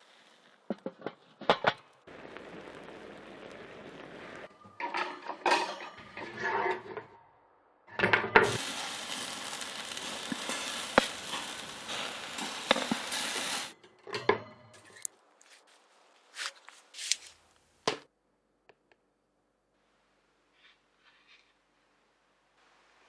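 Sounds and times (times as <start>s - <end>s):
burger patty sizzling on grill: 2.0s - 5.7s, 8.3s - 13.8s
tongs scraping grill grate: 8.4s - 15.1s.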